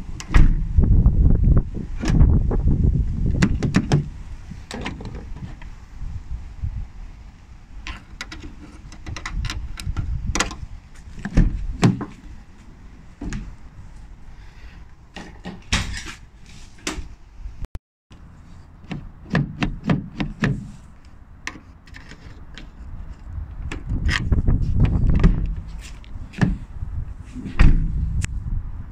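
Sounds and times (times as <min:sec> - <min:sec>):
door latch clicks and knocks: 0:03.3 - 0:04.1, 0:07.9 - 0:10.6
low rumble: 0:23.3 - 0:28.9.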